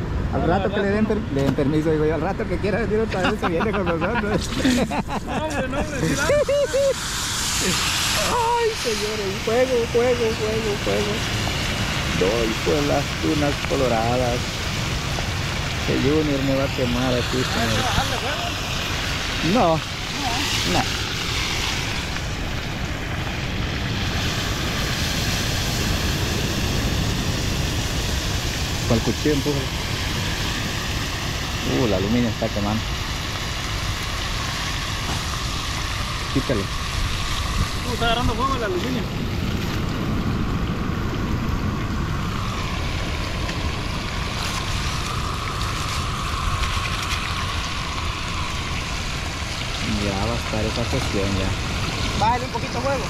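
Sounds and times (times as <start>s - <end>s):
gas burner rushing: 0.9s - 53.0s
ocean surf: 3.2s - 33.9s, 34.6s - 50.0s, 50.8s - 53.0s
fish sizzling in hot oil: 3.2s - 53.0s.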